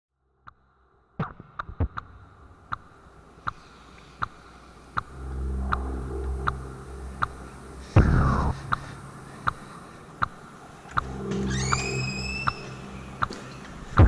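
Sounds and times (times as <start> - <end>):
low droning hum: 1.8 - 14.0
ticking beat: 4.2 - 14.0.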